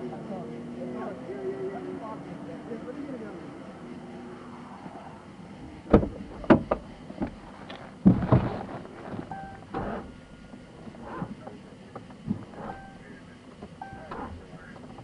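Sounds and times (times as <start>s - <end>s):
sharp knocks and thuds: 5.9s - 7.4s, 8.0s - 10.1s
brief high beep: 9.4s - 9.7s, 12.7s - 13.2s, 13.8s - 14.1s.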